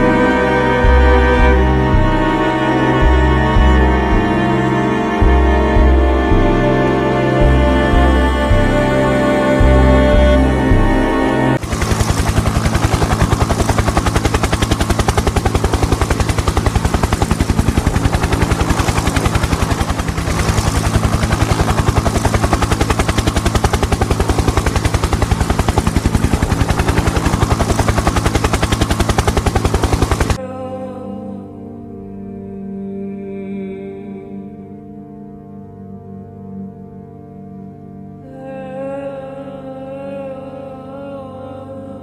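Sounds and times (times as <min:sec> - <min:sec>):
low electronic drone: 0:00.0 - 0:41.5
fast electronic pulse: 0:11.6 - 0:30.4.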